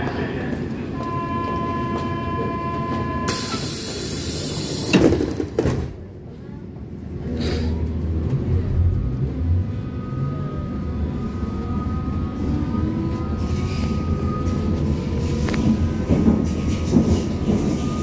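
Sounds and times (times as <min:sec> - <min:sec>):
train car rumble: 0:00.0 - 0:18.0.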